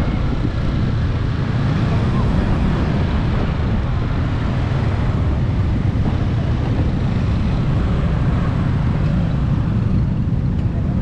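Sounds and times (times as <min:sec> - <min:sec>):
vehicle rumbling on road: 0:00.0 - 0:11.0.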